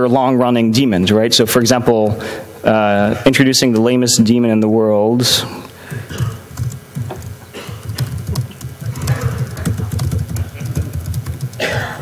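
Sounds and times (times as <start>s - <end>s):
laptop keyboard typing: 5.9s - 12.0s.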